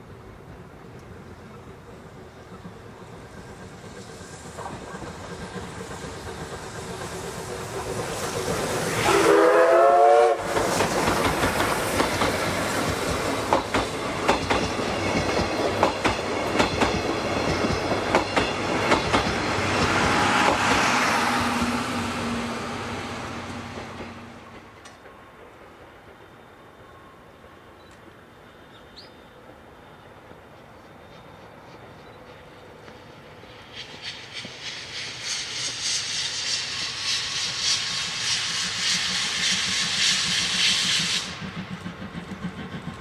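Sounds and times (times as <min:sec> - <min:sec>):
steam locomotive passing: 0:00.0 - 0:43.0
steam whistle: 0:08.9 - 0:10.7
wheels clacking over rail joints: 0:10.4 - 0:22.3.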